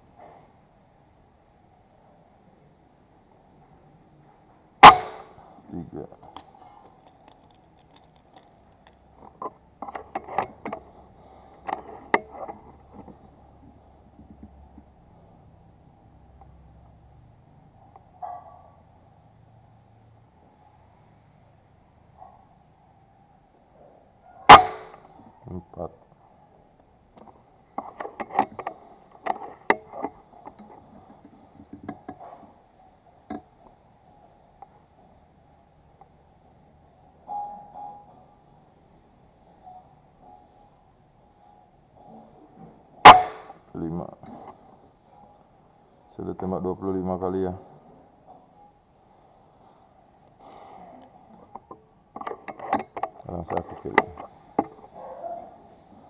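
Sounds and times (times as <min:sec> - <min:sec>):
air rifle bolt clicks and knocks: 0:06.3 - 0:10.9, 0:11.6 - 0:13.2, 0:27.8 - 0:32.2, 0:51.5 - 0:54.8.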